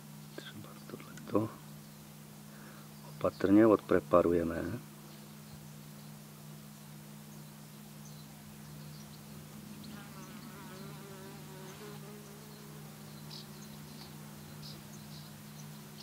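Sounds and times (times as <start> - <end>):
bee wavering buzz: 9.4 - 15.2
bees buzzing: 9.5 - 16.0.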